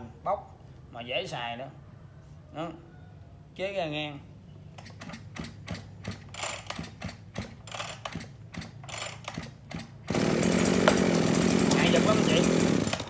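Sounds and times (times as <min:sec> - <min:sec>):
recoil starter ratcheting clicks: 0:04.8 - 0:09.9
brush cutter engine running: 0:06.0 - 0:13.0.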